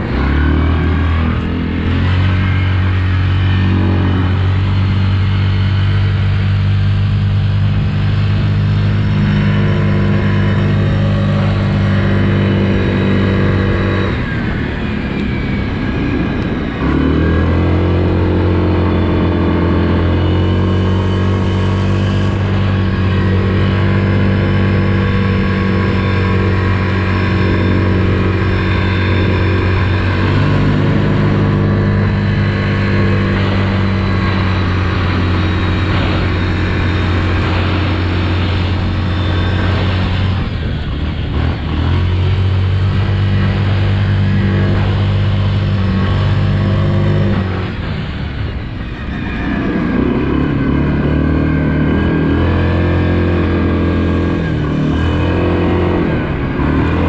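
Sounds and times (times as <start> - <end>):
atv engine running hard: 0.0 - 57.0.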